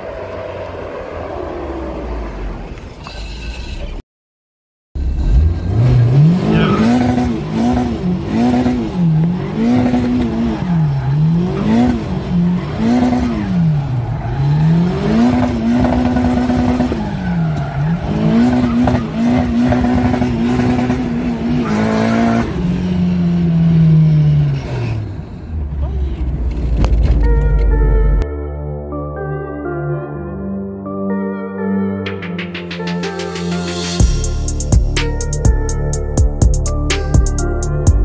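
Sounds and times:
car engine revving: 0:05.0 - 0:28.2.

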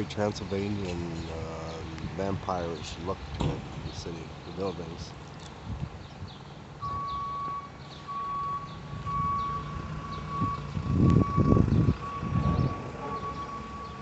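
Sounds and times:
reversing alarm beeping: 0:06.8 - 0:14.0.

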